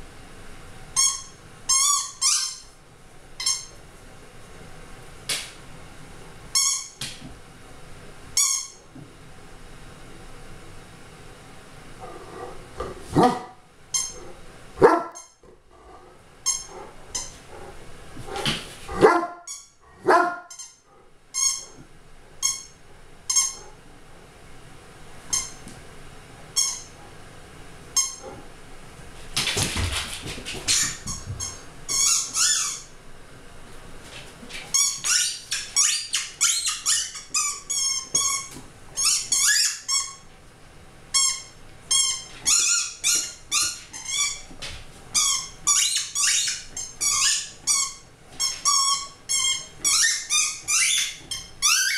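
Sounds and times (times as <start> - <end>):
dog barking and yelping: 13.1 - 13.5, 14.8 - 15.2, 18.9 - 19.4, 20.0 - 20.5.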